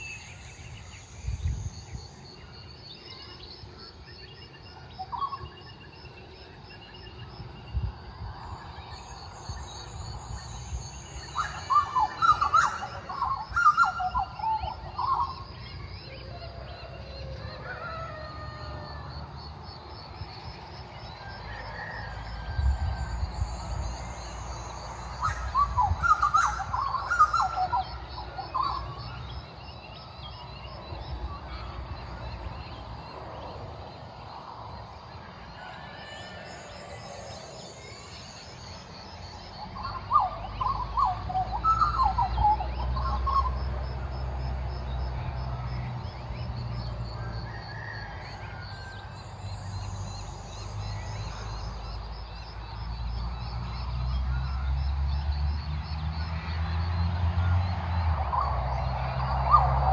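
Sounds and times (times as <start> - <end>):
birds warbling fluted calls: 9.8 - 19.1, 24.8 - 29.3, 39.6 - 43.6.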